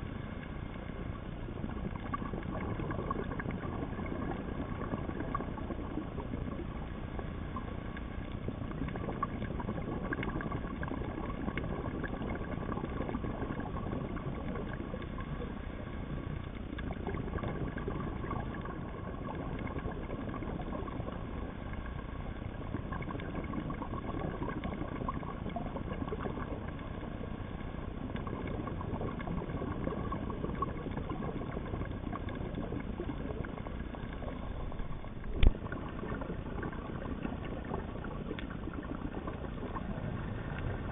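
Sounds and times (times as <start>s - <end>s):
faint steady hum: 0.0s - 40.9s
underwater hiss with crackling: 0.0s - 40.9s.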